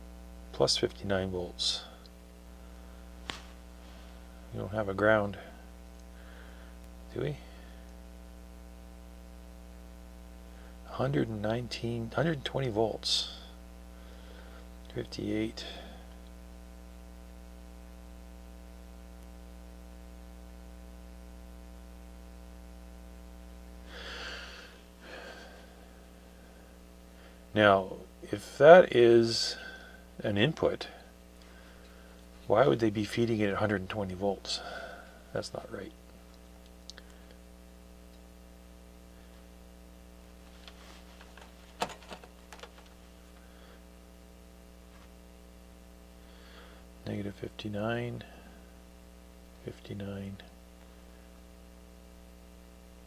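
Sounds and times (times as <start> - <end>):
mains hum: 0.0 - 53.0
short breaths: 6.1 - 6.8, 23.9 - 27.4.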